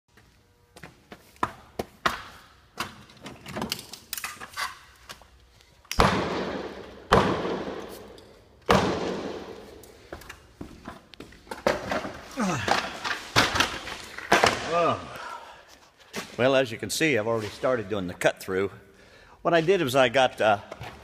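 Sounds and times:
hammer striking concrete wall: 6.0 - 7.9.

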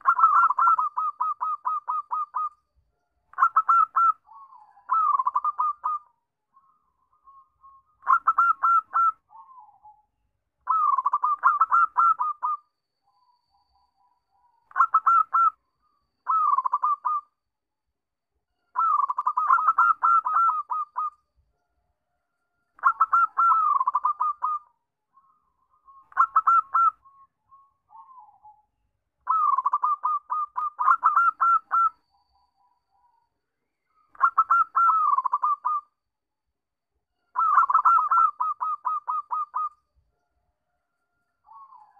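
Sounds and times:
dove cooing: 0.0 - 2.6, 3.4 - 6.1, 8.0 - 10.0, 10.7 - 12.6, 14.7 - 15.6, 16.3 - 17.2, 18.8 - 21.1, 22.8 - 24.7, 26.1 - 27.0, 29.3 - 32.0, 34.2 - 35.9, 37.4 - 39.8.

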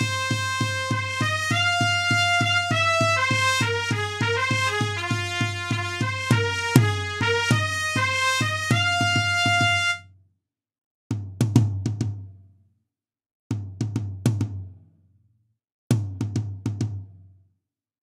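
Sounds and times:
brass section note: 0.0 - 10.0.

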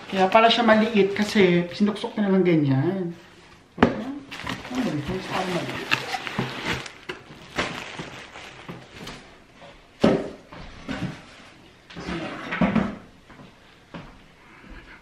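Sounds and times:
packaging rustling: 4.3 - 9.5.

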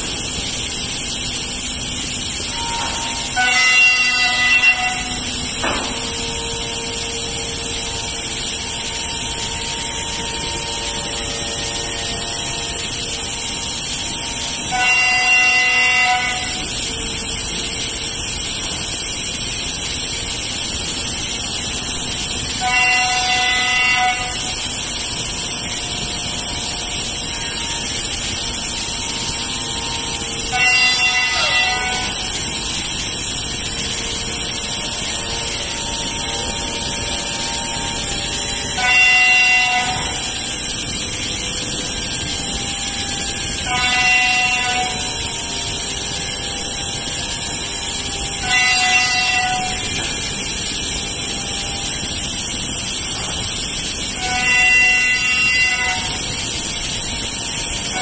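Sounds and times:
cnc router hissing: 0.0 - 58.0
horn-like whines: 2.5 - 17.0, 26.4 - 45.6, 54.2 - 56.4.

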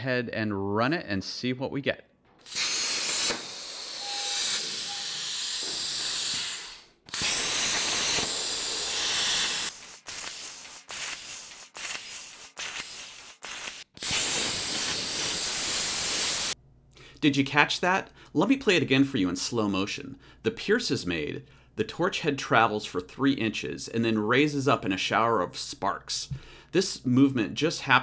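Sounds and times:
plasma cutter hissing: 2.4 - 16.6.

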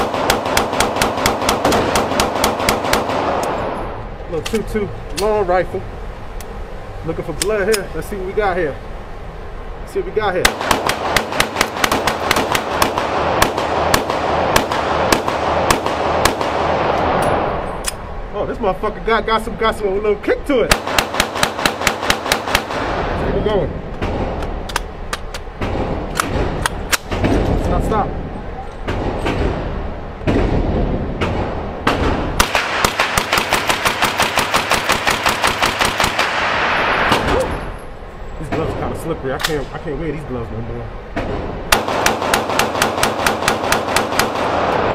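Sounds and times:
pistol shots with echo: 0.0 - 3.8, 10.4 - 17.6, 20.7 - 23.2, 28.9 - 37.6, 41.2 - 44.9
rifle gunshots: 0.0 - 3.8, 10.4 - 17.6, 20.7 - 23.2, 28.9 - 37.6, 41.2 - 44.9.

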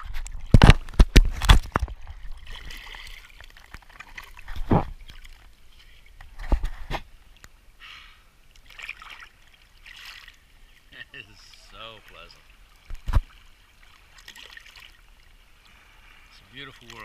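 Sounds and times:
small waves slapping: 0.0 - 7.4, 8.5 - 17.0
water splashing: 0.0 - 7.5, 8.4 - 17.0.

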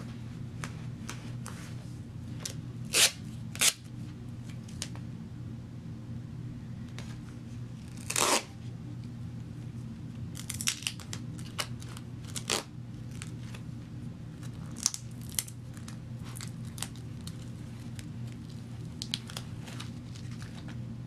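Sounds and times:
tape crackling and rustling: 0.6 - 5.0, 6.9 - 8.6, 9.4 - 20.9
duct tape ripping: 2.9 - 3.9, 7.8 - 8.5, 10.3 - 13.6, 14.4 - 20.6.

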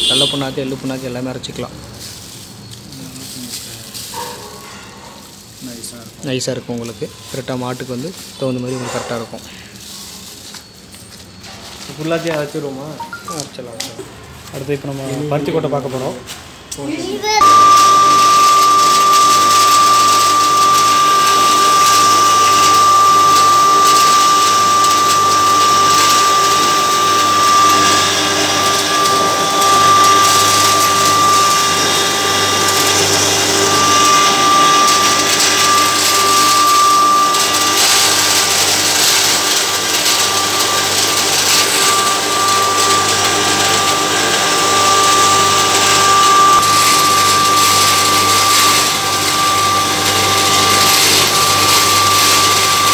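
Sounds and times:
electric grinder running: 17.4 - 52.9.

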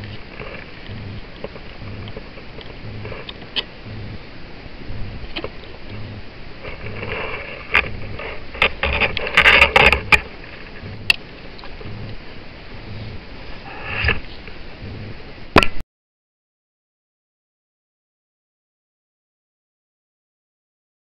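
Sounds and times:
wire and hand tools clicking: 0.0 - 4.2, 4.9 - 12.2.

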